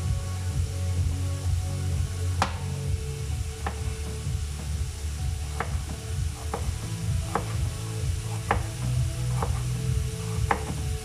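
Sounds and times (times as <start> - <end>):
steady low rumble: 0.0 - 11.0
knife cutting carrot on board: 5.4 - 7.6, 8.3 - 9.7, 10.3 - 10.8.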